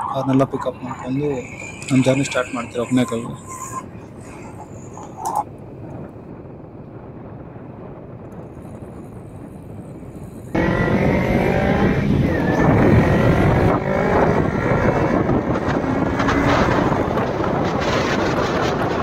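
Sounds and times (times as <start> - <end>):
wind rushing over microphone: 0.0 - 19.0
motorcycle engine accelerating: 10.5 - 19.0.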